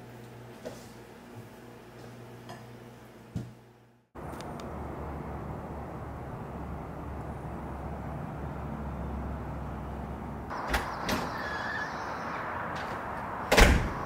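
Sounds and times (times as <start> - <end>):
low outdoor rumble: 4.2 - 14.0
front door slamming shut: 10.5 - 11.8, 12.7 - 14.0.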